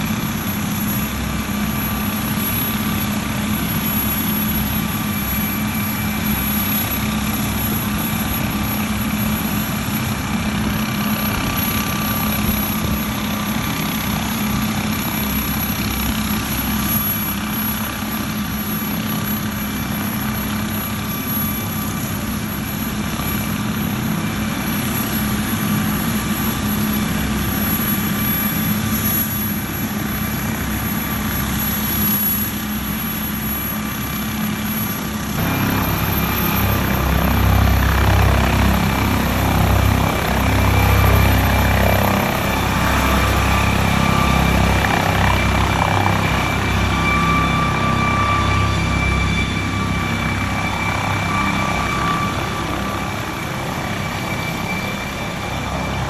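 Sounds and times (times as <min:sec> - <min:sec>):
constant engine whine: 0:00.0 - 0:56.0
helicopter engine idling: 0:00.0 - 0:56.0.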